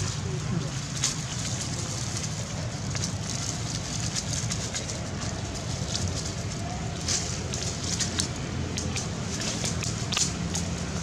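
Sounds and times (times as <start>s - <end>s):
dry leaves and twigs crackling: 0.0s - 11.0s
low background noise: 0.0s - 11.0s.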